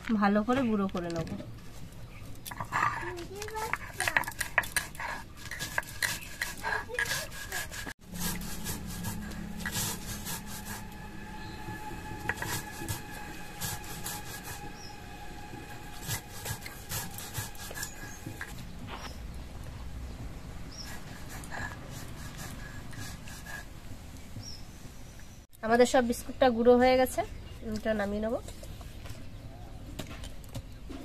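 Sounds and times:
stone roller grinding on stone: 2.6 - 18.6.

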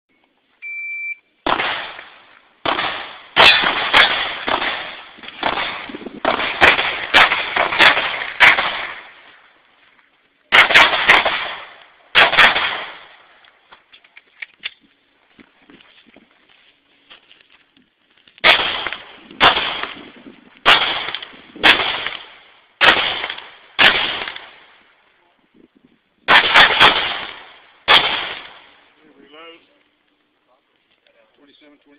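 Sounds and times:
shot timer beep: 0.6 - 1.3
handgun shots echoing: 1.5 - 9.1, 10.5 - 13.2, 18.4 - 20.0, 20.6 - 24.6, 26.3 - 28.8.

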